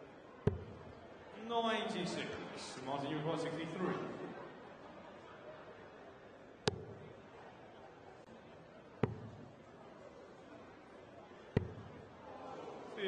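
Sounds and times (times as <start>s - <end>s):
low hall background: 0.0s - 13.0s
darts striking dartboard: 6.7s - 7.1s, 9.0s - 9.5s, 11.6s - 12.0s.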